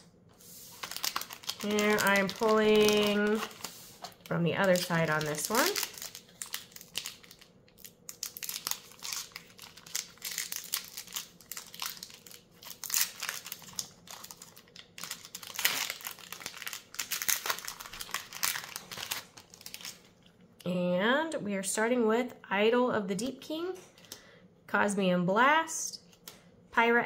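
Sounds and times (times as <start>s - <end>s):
plastic wrapper crinkling: 0.7s - 20.3s.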